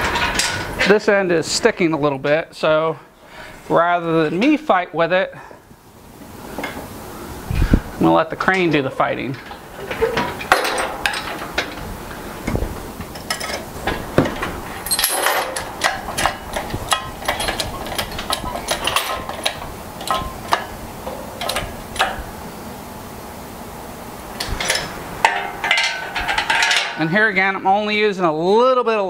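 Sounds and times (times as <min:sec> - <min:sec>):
crane chain clanking: 0:09.4 - 0:11.9, 0:14.4 - 0:22.3, 0:24.4 - 0:27.4.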